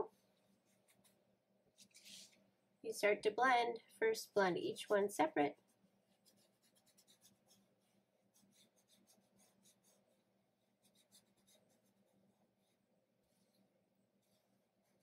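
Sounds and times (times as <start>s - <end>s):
fingertip rubbing on paper: 5.6s - 13.6s.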